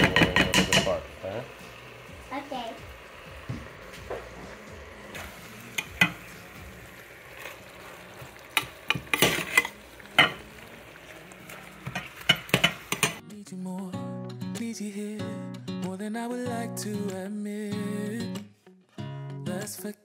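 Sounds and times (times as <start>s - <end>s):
low sizzle of food cooking: 0.0s - 13.2s
metal utensil scraping a saucepan: 8.6s - 10.4s.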